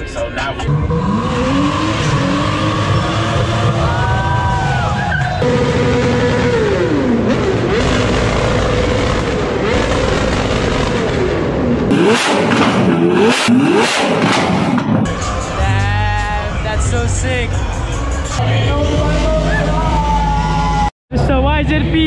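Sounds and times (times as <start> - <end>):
car engine revving: 0.4 - 15.6
engine rev blips: 0.6 - 15.6.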